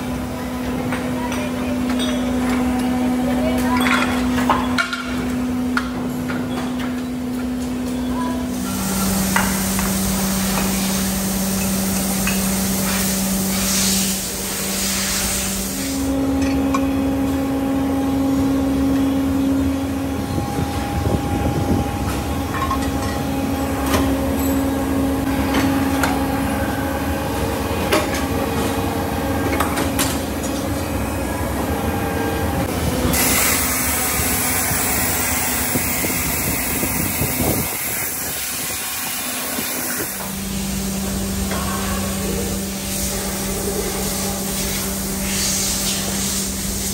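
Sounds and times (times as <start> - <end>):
machinery humming: 0.0 - 46.9
hiss: 8.8 - 16.1.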